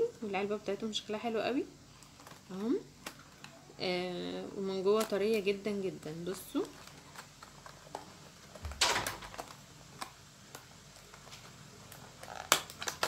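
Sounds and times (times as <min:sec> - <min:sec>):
thump and rustle: 0:08.6 - 0:09.4.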